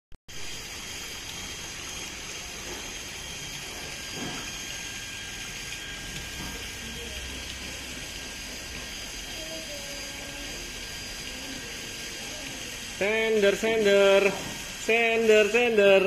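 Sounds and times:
running water in pond: 0.3 - 16.0.

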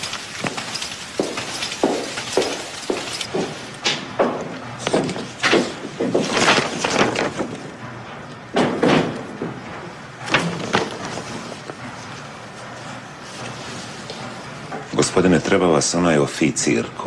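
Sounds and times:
paper rustling: 0.0 - 3.8, 4.8 - 7.7, 10.3 - 14.4.

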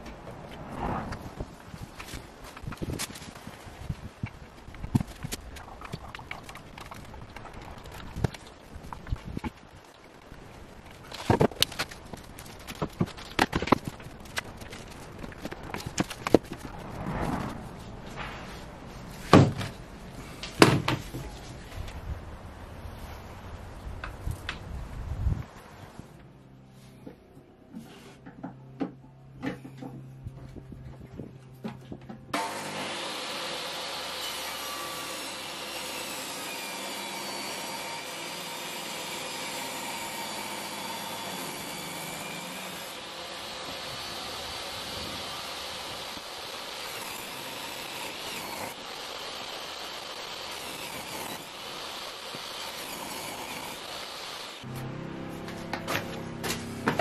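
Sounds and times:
saw blade cutting wood: 32.4 - 57.0
table saw motor whine: 32.4 - 57.0.

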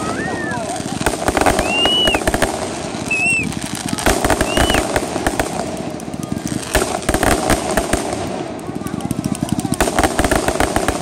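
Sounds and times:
firework whistles: 0.0 - 5.0
fireworks crackling and banging: 0.0 - 11.0.

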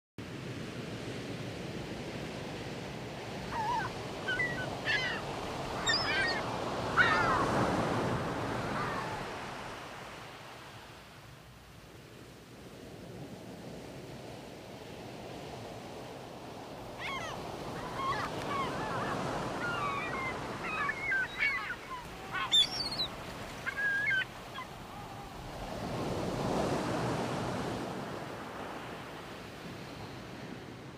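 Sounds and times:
wind: 0.2 - 30.9
seagulls calling: 3.4 - 9.4, 17.0 - 25.6
surf: 15.6 - 30.8.

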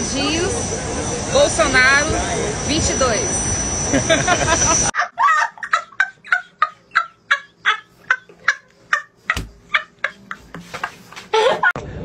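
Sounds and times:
boy laughing hard: 3.9 - 11.8.

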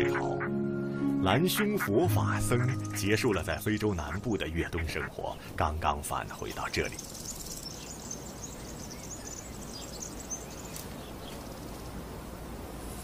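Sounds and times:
insects chirring: 2.8 - 12.0.

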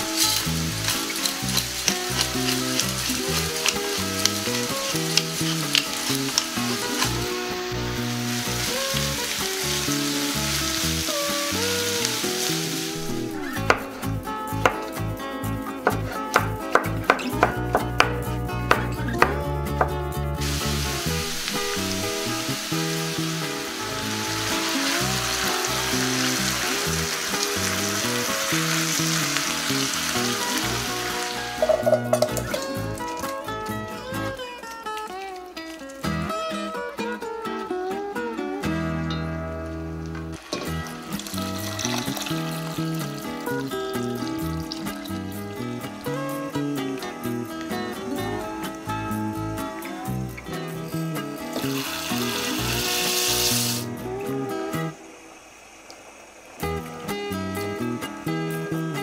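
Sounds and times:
wooden spatula stirring vegetables: 0.0 - 10.8
vegetables sizzling in oil: 0.0 - 36.8, 39.8 - 59.0
background music: 0.0 - 55.2, 56.6 - 59.0.

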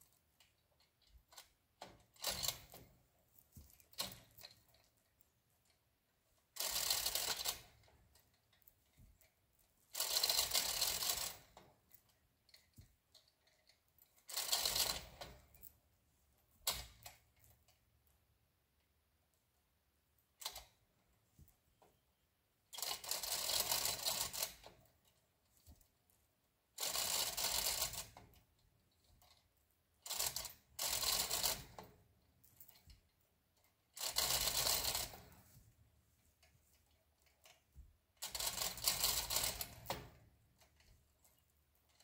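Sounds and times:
chain hoist ratcheting: 0.0 - 5.8, 6.4 - 8.9, 9.8 - 15.8, 22.7 - 25.3, 26.8 - 29.4, 30.0 - 33.1, 33.9 - 35.5, 38.2 - 42.0.

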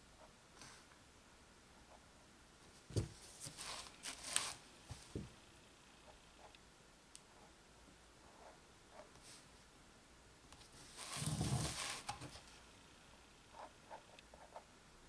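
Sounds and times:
canvas scraping and rustling: 10.9 - 12.2.

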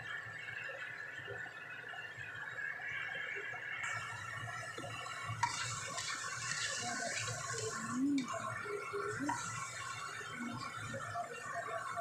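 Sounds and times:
tofu sizzling in hot oil: 3.8 - 12.0
spatula stirring in wok: 5.4 - 8.3.

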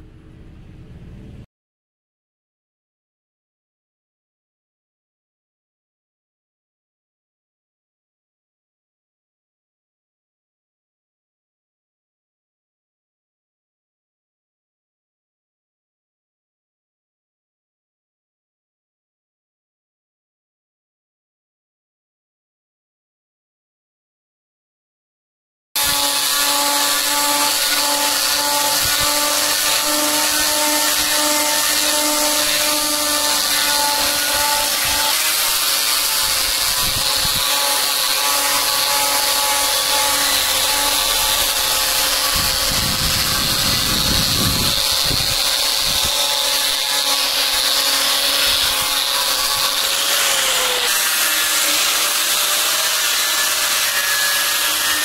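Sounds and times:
heavier rumble: 0.0 - 1.5
power tool cutting wood: 25.8 - 55.0.

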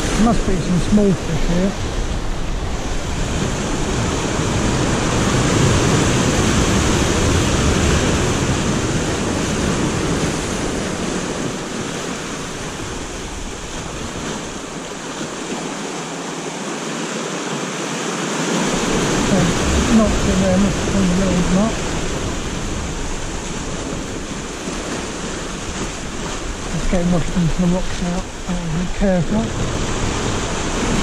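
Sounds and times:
wind rumble on microphone: 0.0 - 15.7, 18.5 - 31.0
surf breaking over rocks: 0.0 - 31.0.

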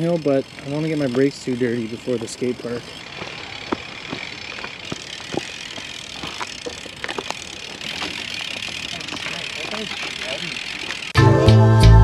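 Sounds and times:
bike clicking and rattling: 0.0 - 11.2
footsteps on dirt: 0.3 - 11.1.

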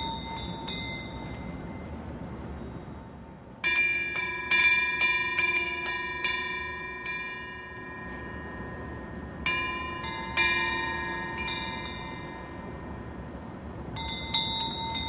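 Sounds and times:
wind bells clinking: 0.0 - 15.0.

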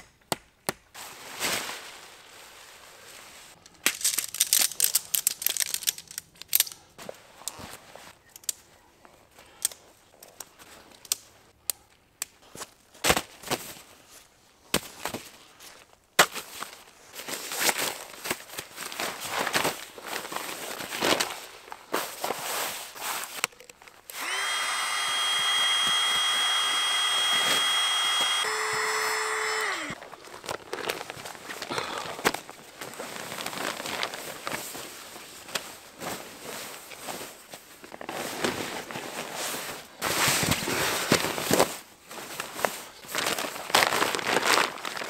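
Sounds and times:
rustling and crinkling: 0.9 - 24.1, 30.0 - 45.0
small electric motor running: 24.1 - 30.0.

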